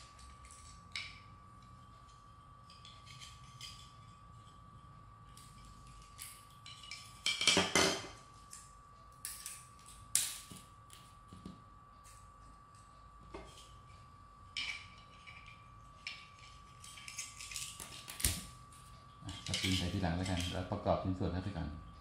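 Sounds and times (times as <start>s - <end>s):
plastic parts clattering: 19.3s - 20.6s.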